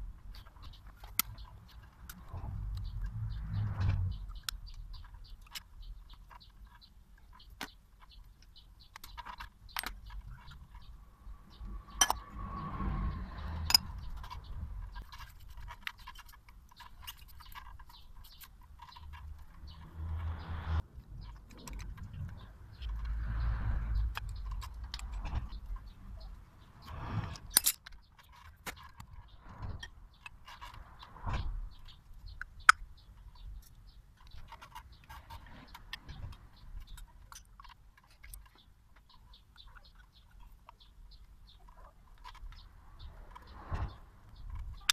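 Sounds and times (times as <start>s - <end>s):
metal brake parts clicking and scraping: 13.4s - 20.0s, 23.9s - 41.0s.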